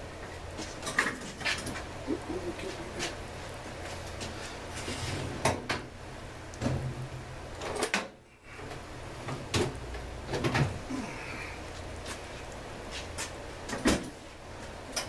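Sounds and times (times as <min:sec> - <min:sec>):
low steady hum: 0:00.0 - 0:05.2.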